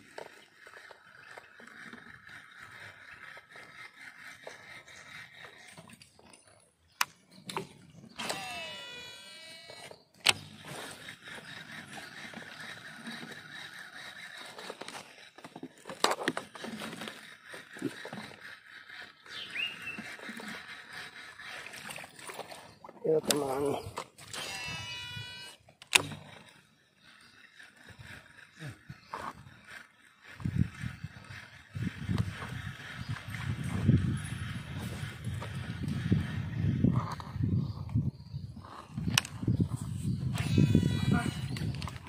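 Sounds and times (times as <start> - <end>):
fishing reel brake whine: 7.3 - 15.4, 22.6 - 42.0.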